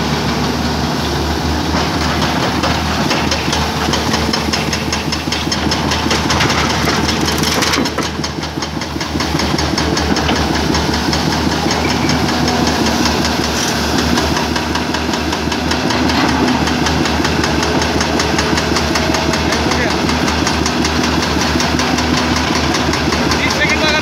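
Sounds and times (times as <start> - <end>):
excavator diesel engine running: 0.0 - 24.0.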